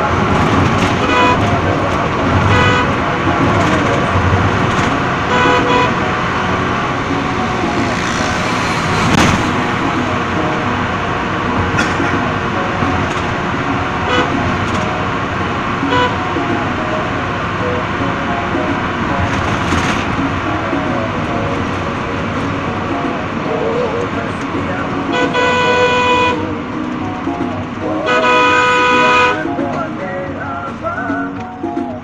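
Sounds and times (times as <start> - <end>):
bus driving fast: 0.0 - 32.0
short horn toots: 2.4 - 3.0, 5.3 - 6.1.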